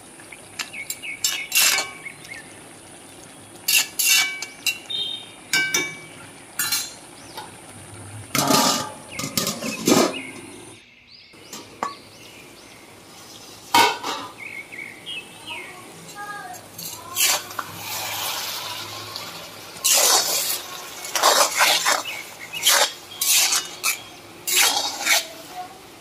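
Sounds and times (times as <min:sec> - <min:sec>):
metal spatula scraping a wok: 0:01.2 - 0:02.0, 0:03.7 - 0:04.8, 0:08.3 - 0:10.3, 0:16.7 - 0:25.5
steel lid clanking on pan: 0:01.2 - 0:02.0, 0:05.5 - 0:07.0, 0:08.3 - 0:10.3, 0:13.7 - 0:14.4.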